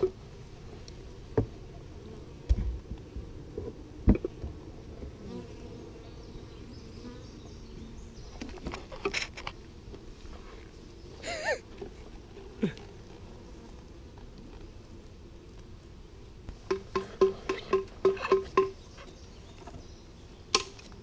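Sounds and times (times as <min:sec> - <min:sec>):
honeybees buzzing: 0:00.0 - 0:21.0
sharp knocks: 0:16.6 - 0:18.8.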